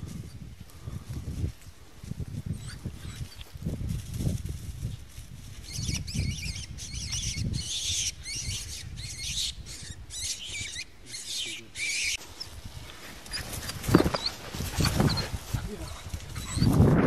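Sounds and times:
low thumps of movement: 12.2 - 17.0.

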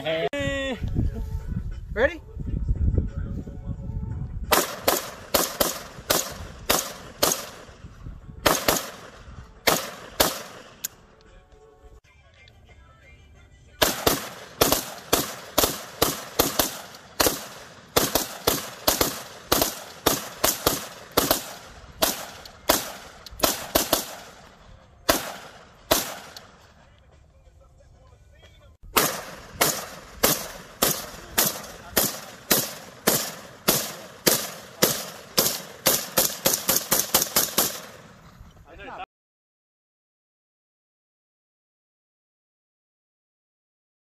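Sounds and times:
rifles firing rapid shots: 4.5 - 7.8, 8.4 - 11.0, 13.8 - 26.8, 28.9 - 38.2.

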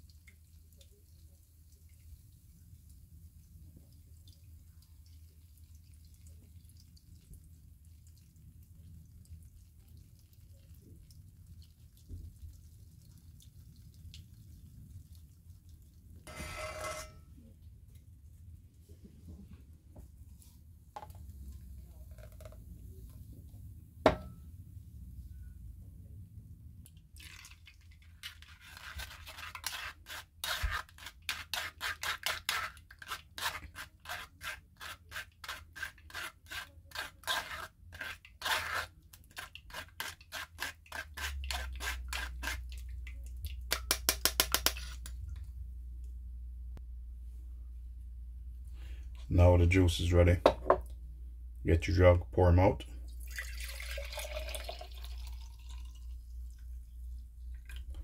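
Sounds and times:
spoon scraping metal sieve: 16.3 - 17.3, 28.2 - 42.8.

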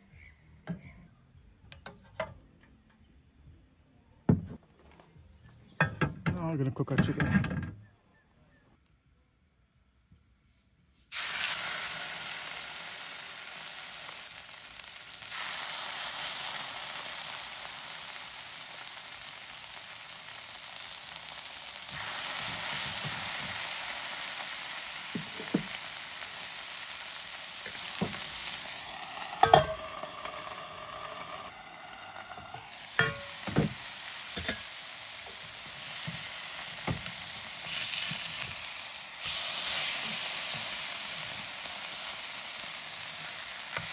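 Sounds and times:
chicken sizzling in a pan: 11.1 - 43.9.

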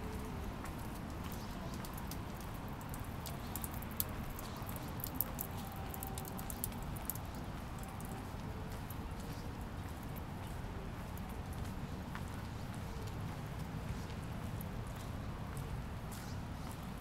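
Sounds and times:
light rain pattering: 0.0 - 17.0.

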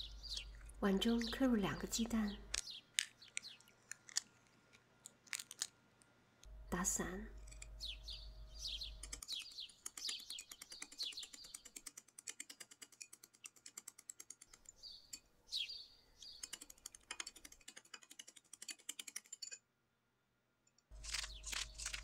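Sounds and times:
high falling chirps: 0.0 - 3.8.

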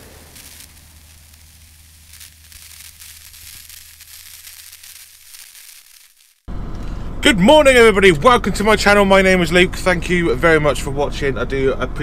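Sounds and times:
faint crackling hiss: 0.0 - 6.9
low steady hum: 6.5 - 12.0.

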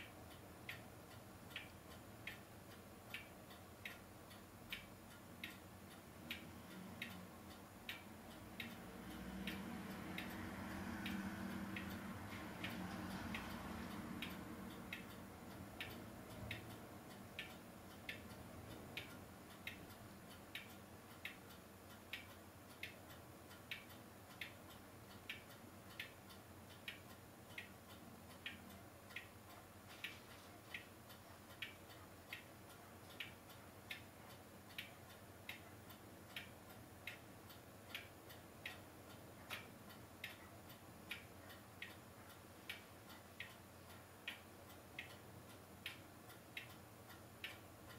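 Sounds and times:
faint ticking: 0.0 - 47.9
quiet hiss: 0.0 - 47.9.

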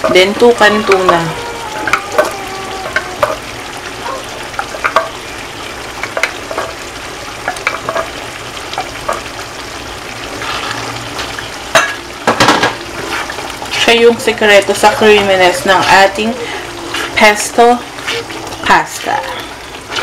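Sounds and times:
sauce sizzling in a frying pan: 0.0 - 20.0
spatula stirring sauce: 14.8 - 20.0.

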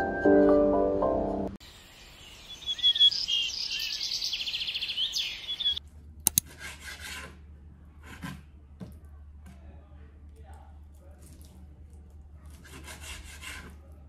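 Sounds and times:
birds chirping: 1.6 - 5.8
rasping rubbing noise: 12.5 - 13.9.

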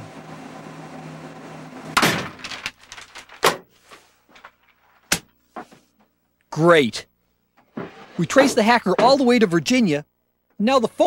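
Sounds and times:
door slamming: 2.0 - 2.6.

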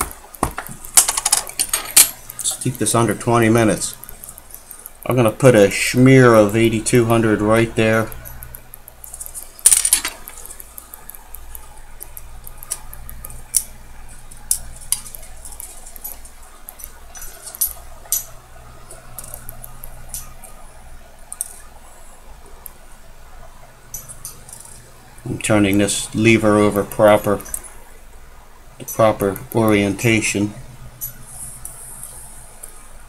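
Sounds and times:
low steady hum: 0.0 - 33.0
small metal tools clicking: 14.4 - 18.3.

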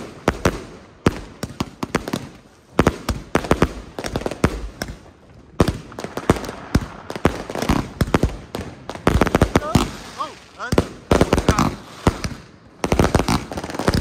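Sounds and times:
fireworks banging: 0.0 - 14.0.

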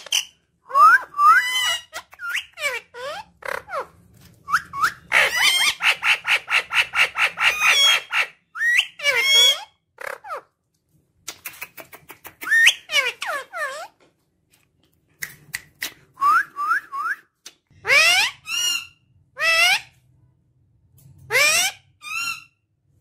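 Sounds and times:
parakeet chirping: 0.0 - 3.9, 4.5 - 10.4, 12.4 - 14.0, 17.8 - 20.0.

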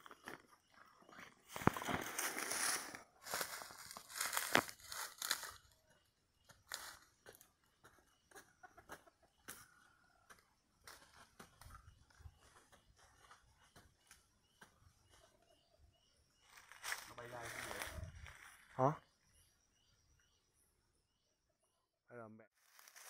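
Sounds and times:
shoes scraping tree trunk: 1.5 - 5.6
dry leaves crunching underfoot: 1.5 - 5.8, 6.6 - 7.1, 16.5 - 18.7, 22.6 - 23.0.

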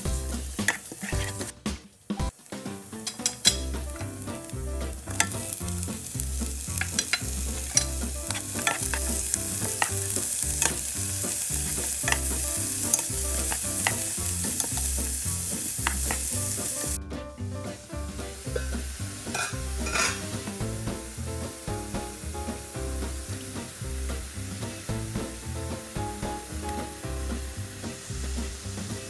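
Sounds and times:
vegetables sizzling in hot oil: 0.0 - 1.6, 2.3 - 17.0, 17.7 - 29.0
wooden spatula scraping pan: 0.5 - 1.6, 3.0 - 17.0, 18.5 - 20.6.

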